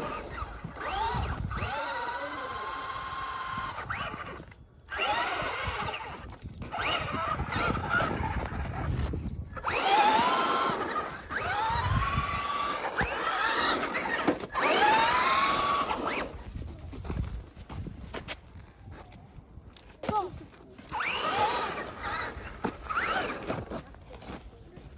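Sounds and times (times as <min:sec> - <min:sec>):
electric toy truck motor whining: 0:00.0 - 0:16.7, 0:20.9 - 0:23.7.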